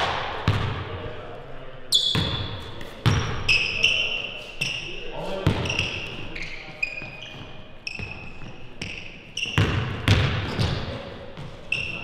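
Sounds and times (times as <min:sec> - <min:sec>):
sneakers squeaking: 0:00.4 - 0:01.1, 0:01.8 - 0:12.0
basketball bouncing on hardwood: 0:09.5 - 0:10.8.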